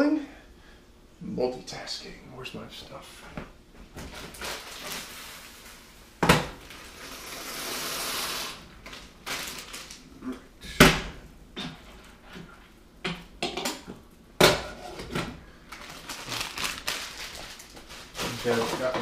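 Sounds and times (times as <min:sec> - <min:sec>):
things knocked in kitchen: 0:06.2 - 0:06.6, 0:10.6 - 0:11.8, 0:13.0 - 0:15.4
hiss: 0:07.1 - 0:08.6.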